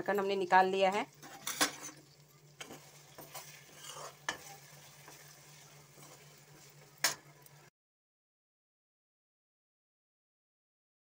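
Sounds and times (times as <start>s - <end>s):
vegetables sizzling in oil: 0.0s - 7.7s.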